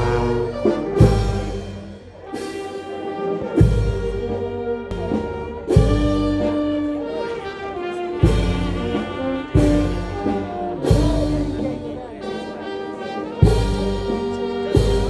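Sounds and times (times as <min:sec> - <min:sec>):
heavy drum beat: 0:00.0 - 0:02.7, 0:03.5 - 0:06.9, 0:08.2 - 0:12.0, 0:13.4 - 0:15.0
brass band playing: 0:00.0 - 0:15.0.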